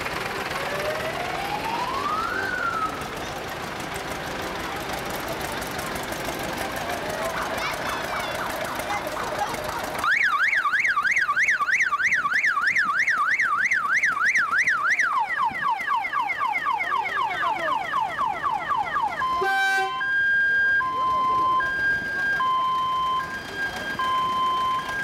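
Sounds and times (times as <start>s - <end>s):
electronic siren warbling: 0.6s - 3.0s, 10.0s - 25.0s.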